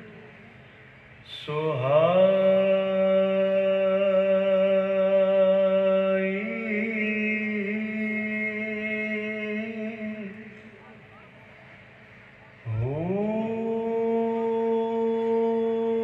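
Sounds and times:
man chanting long note: 12.4s - 16.0s.

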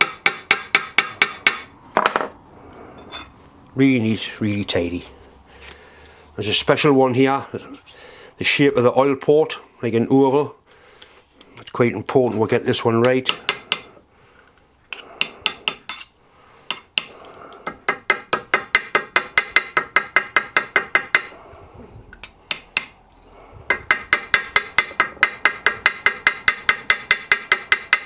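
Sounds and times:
hammer tapping on metal bolt: 17.9s - 21.3s, 23.7s - 28.0s.

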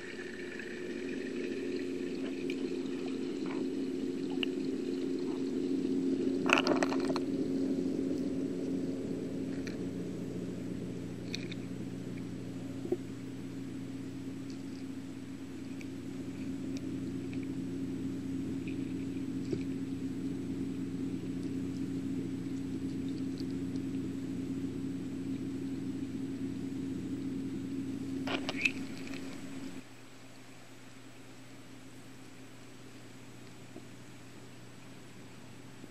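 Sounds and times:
steady low hum: 0.0s - 35.9s.

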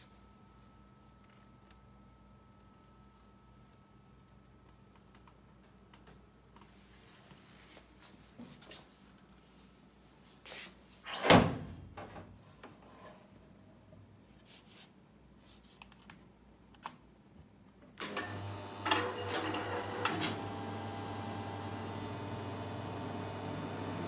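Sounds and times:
computer cooling fans: 18.4s - 24.0s.

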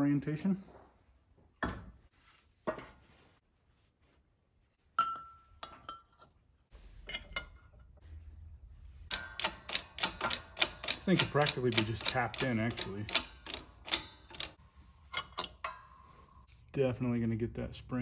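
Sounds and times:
metal clinks and knocks: 5.0s - 6.4s, 7.0s - 8.2s, 8.9s - 16.2s.

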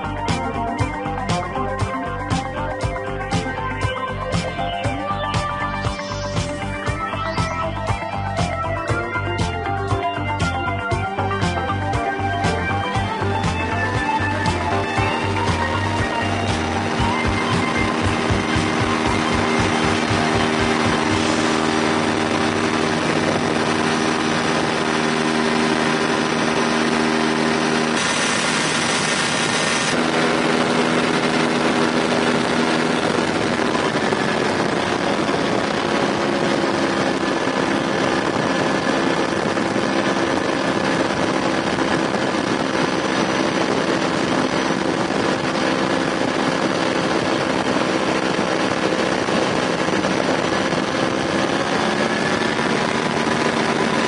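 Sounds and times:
aircraft engine and propeller: 0.0s - 54.0s.

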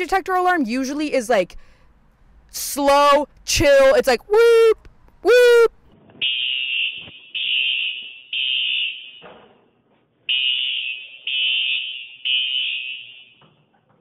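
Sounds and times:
smoke alarm beeping: 6.2s - 9.3s, 10.3s - 13.6s.

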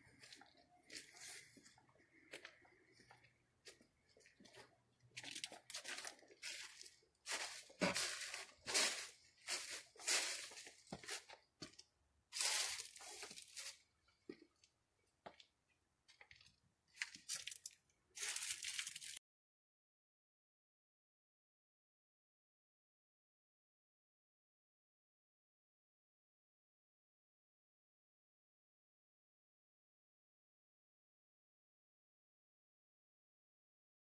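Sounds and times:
footsteps crunching dry leaves: 0.2s - 1.6s, 5.2s - 11.3s, 12.4s - 13.8s, 17.2s - 19.2s.

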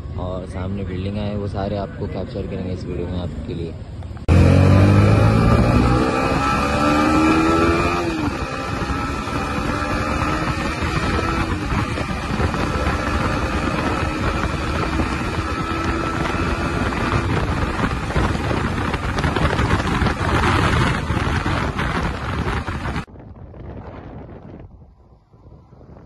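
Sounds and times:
wind rushing over microphone: 0.0s - 26.0s
motorcycle engine accelerating: 3.3s - 23.1s.

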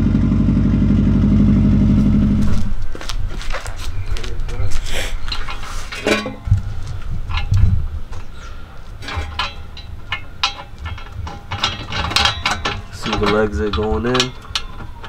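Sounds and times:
metallic clicks and clinks of pipe: 5.1s - 15.0s.

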